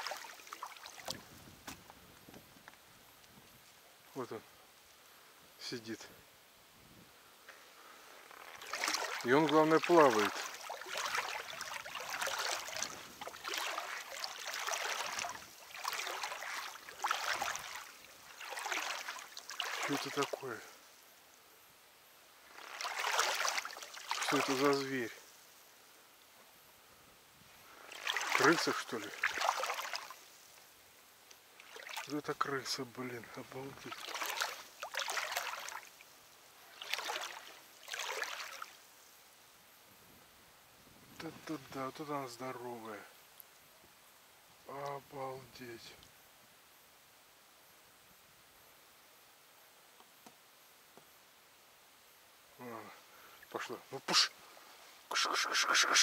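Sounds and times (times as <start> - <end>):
river water sloshing and lapping: 0.0 - 2.0, 8.0 - 21.0, 22.4 - 25.7, 27.7 - 39.0, 53.2 - 56.0.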